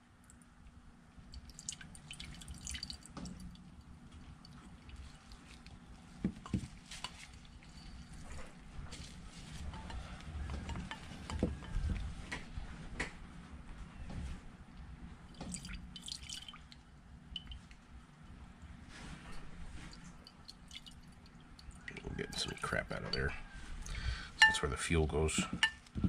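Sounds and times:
liquid dripping into ceramic bowl: 1.3 - 6.5, 15.3 - 17.8, 19.9 - 22.4.

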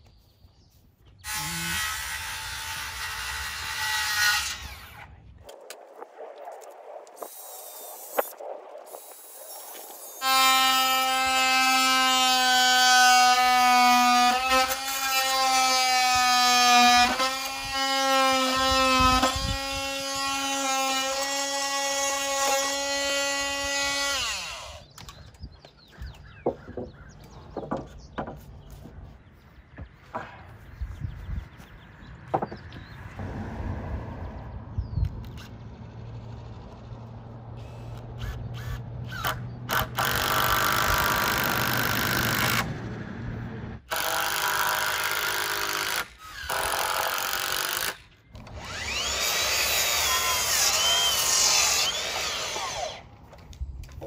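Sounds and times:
oscillating multi-tool buzzing whine: 7.2 - 25.0, 43.9 - 53.1.

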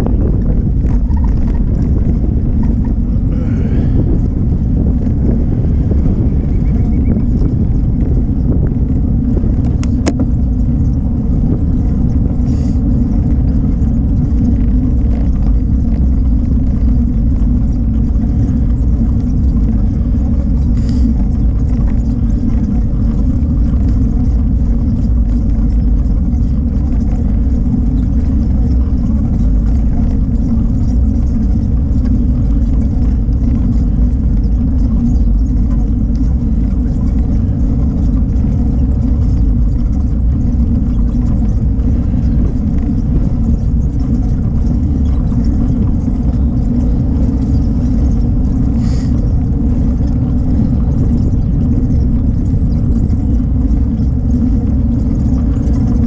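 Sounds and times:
bicycle rolling on paved path: 0.0 - 56.0
wind buffeting microphone: 0.0 - 56.0.

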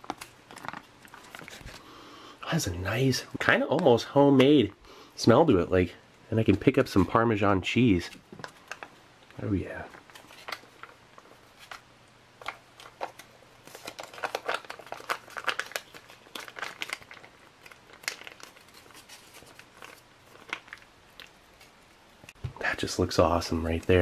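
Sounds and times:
foil pouch crinkling: 0.0 - 1.9, 8.3 - 22.4.

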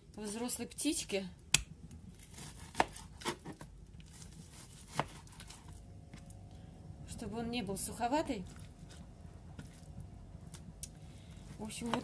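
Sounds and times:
knife chopping on cutting board: 2.4 - 3.5, 4.8 - 5.6.

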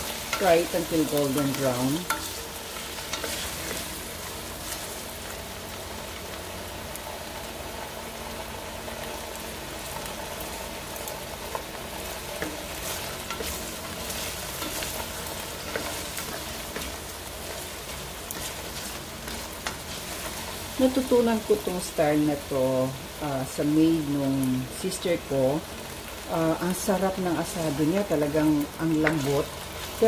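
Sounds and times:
spatula scraping a pan: 0.0 - 4.0, 12.4 - 20.8
potatoes sizzling in oil: 0.0 - 30.0.

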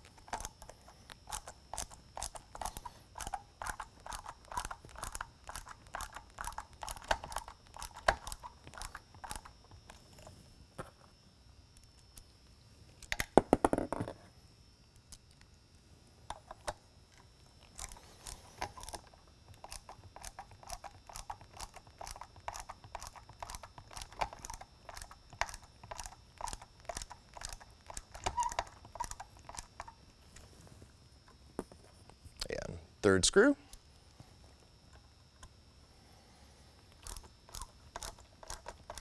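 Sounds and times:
screwdriver turning screw clicks: 37.0 - 39.0.

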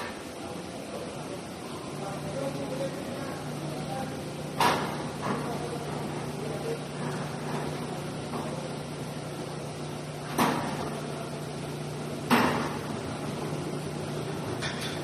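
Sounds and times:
steady low hum: 0.0 - 15.0
metallic clanks with ringing: 14.6 - 15.0.

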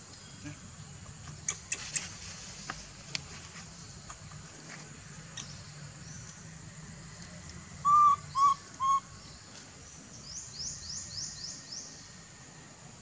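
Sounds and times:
baby monkey coo calls: 7.8 - 9.1.

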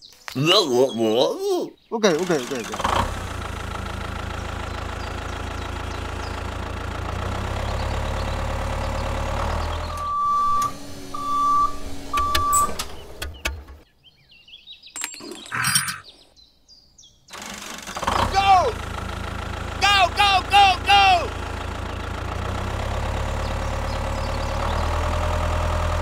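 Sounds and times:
tractor engine running: 2.1 - 13.8, 17.3 - 26.0
short beeps: 10.0 - 12.7.

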